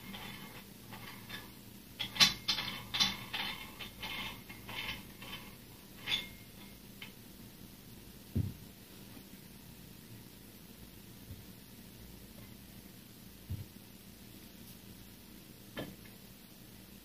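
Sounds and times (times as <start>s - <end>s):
weight plates scraping and clicking: 0.0s - 7.2s.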